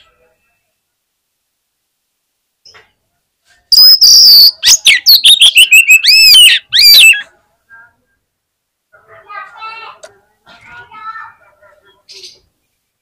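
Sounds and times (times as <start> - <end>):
bird singing: 3.7 - 7.3.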